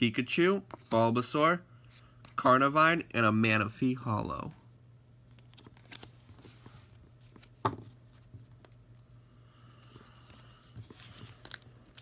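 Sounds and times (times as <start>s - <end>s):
low steady hum: 0.0s - 12.0s
faint card rustling: 5.3s - 9.1s, 10.3s - 12.0s.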